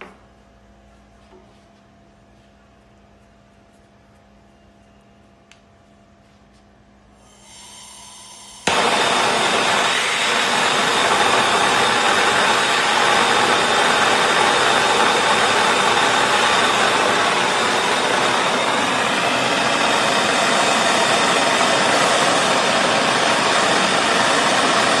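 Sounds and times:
gas hissing: 7.2s - 25.0s
torch flame hissing: 7.3s - 25.0s.

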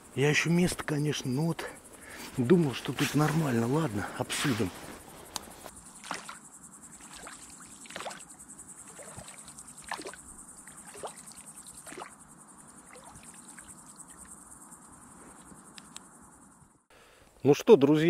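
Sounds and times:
crickets chirring: 0.0s - 18.0s
oars pulling through water: 7.0s - 12.2s.

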